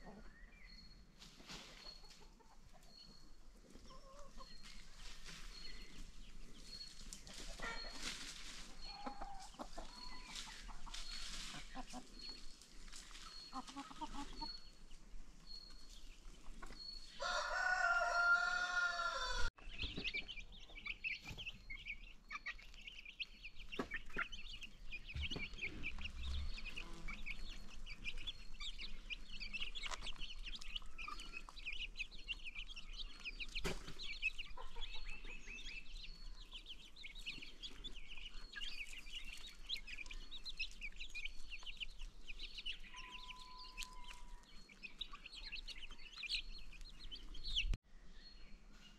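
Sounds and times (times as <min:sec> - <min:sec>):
baby chicks peeping: 0:00.0 - 0:48.9
adult chicken calling: 0:17.2 - 0:19.5.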